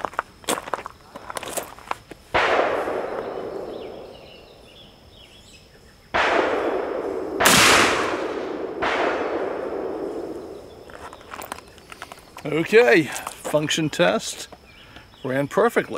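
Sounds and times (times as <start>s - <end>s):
revolver gunshots with echo: 2.4s - 4.8s, 6.1s - 10.9s.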